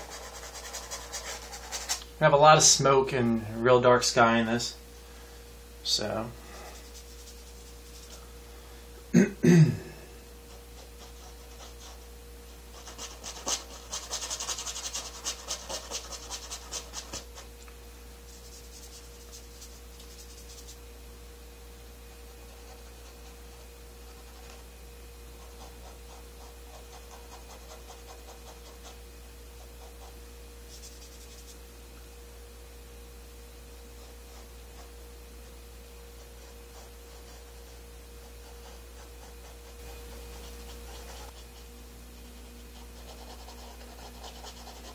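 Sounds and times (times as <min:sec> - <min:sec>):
paintbrush scrubbing on canvas: 0:00.0 - 0:02.0, 0:06.5 - 0:08.2, 0:10.5 - 0:17.5, 0:18.2 - 0:20.8, 0:29.6 - 0:31.6, 0:36.1 - 0:44.9.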